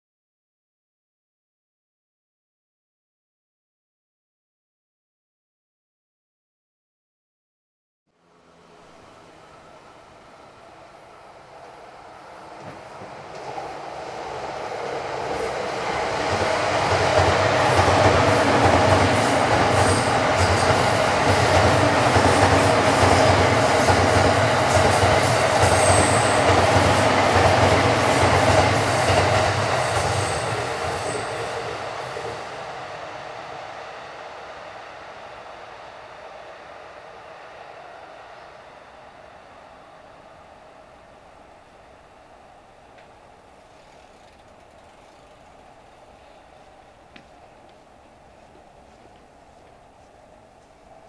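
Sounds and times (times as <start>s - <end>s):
electric train passing: 8.1s - 51.0s
high wheel squeals: 25.1s - 26.7s
wheels clicking over rail joints: 42.9s - 49.8s.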